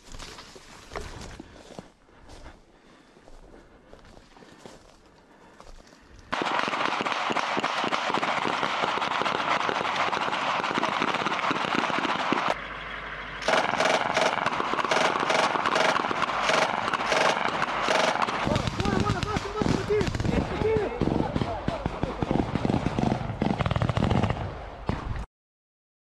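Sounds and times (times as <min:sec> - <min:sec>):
rapid automatic gunfire: 0:06.3 - 0:12.6, 0:13.4 - 0:25.0.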